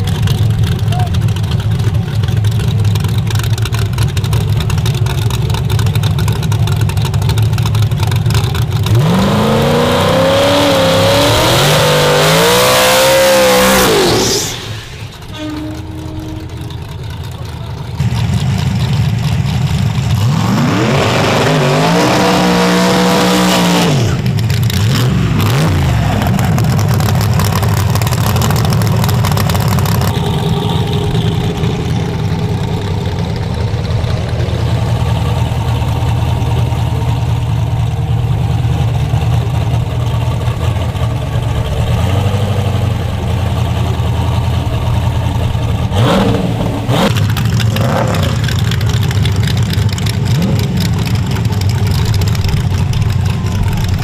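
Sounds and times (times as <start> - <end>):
deep engine idle rumble: 0.0 - 9.0, 14.6 - 20.3, 26.1 - 45.9, 46.5 - 54.0
truck engine revving: 0.0 - 54.0.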